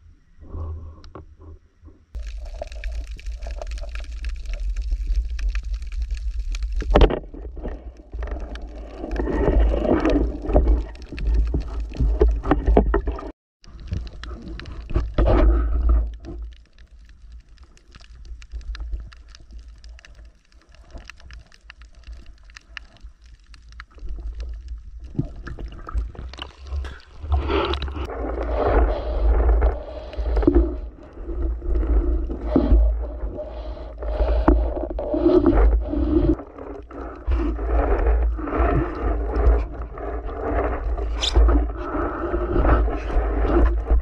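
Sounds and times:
water sloshing and gurgling: 0:00.3 - 0:44.0
underwater hiss: 0:26.4 - 0:39.4.

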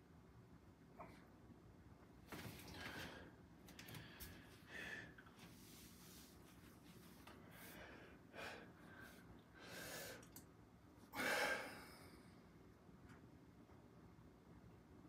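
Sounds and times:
man breathing hard: 0:02.8 - 0:05.3, 0:07.4 - 0:10.4, 0:11.1 - 0:12.3.

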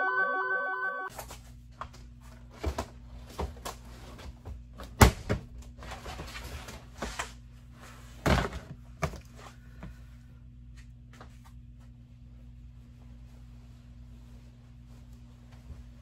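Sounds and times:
steady low hum: 0:07.2 - 0:16.0.

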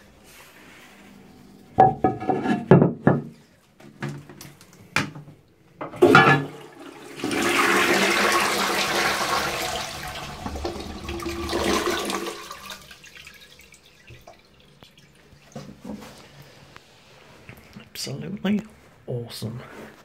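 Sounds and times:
toilet flushing: 0:05.9 - 0:16.7
water rushing into toilet bowl: 0:06.0 - 0:16.5.

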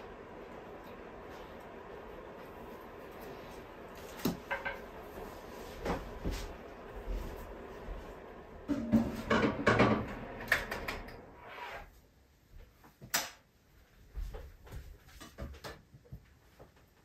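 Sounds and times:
footsteps on wooden floor: 0:05.6 - 0:08.2, 0:14.0 - 0:15.6
clatter of kitchen items: 0:08.7 - 0:11.0.

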